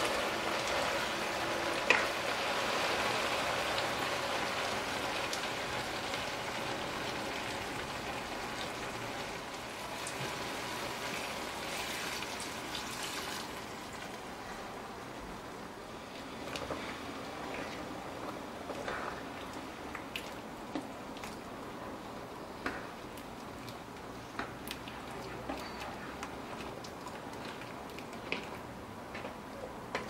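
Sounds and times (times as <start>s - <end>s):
food sizzling in a frying pan: 0.0s - 14.2s
liquid pouring into pan: 9.8s - 14.1s.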